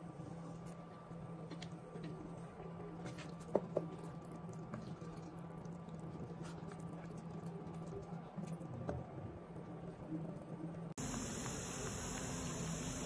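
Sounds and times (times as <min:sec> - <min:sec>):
steady low hum: 0:00.0 - 0:13.0
wooden spoon stirring thick sauce: 0:01.5 - 0:09.0.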